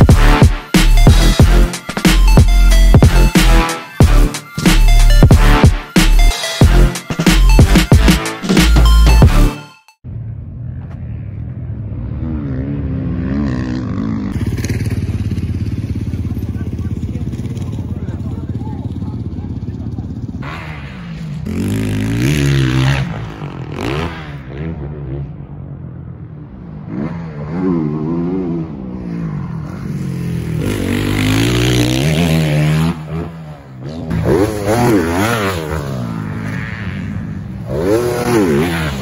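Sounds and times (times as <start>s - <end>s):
dirt bike engines revving: 10.2s - 39.0s.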